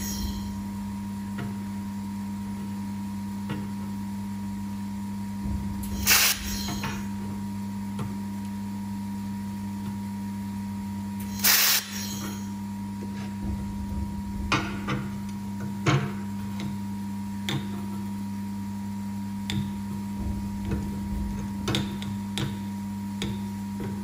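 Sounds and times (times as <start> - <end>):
laser unit hum: 0.0 - 24.0
laser welder hiss: 5.8 - 7.0, 11.2 - 12.5.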